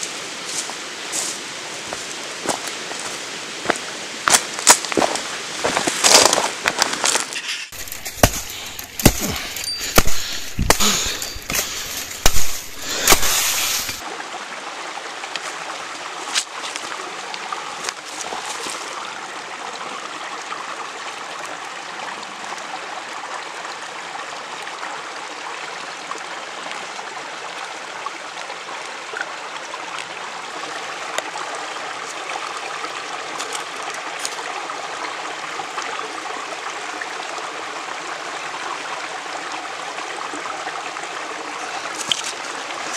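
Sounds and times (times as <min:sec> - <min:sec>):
footsteps crunching on dry leaves: 0:00.0 - 0:14.0
running water: 0:00.0 - 0:42.9
twigs snapping: 0:04.3 - 0:05.1, 0:05.8 - 0:14.0, 0:41.9 - 0:42.4.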